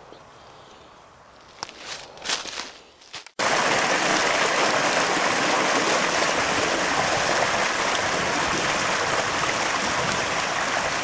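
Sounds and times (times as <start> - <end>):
creek water rushing over rocks: 3.4 - 11.0.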